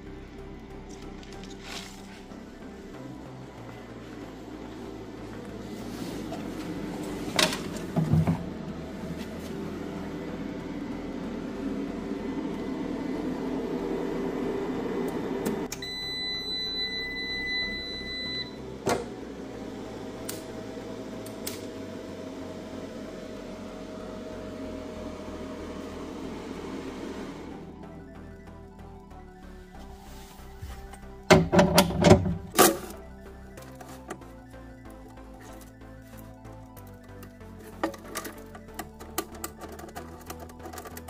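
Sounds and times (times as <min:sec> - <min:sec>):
steady low hum: 0:00.0 - 0:41.0
inverter buzzer beep: 0:15.7 - 0:18.6.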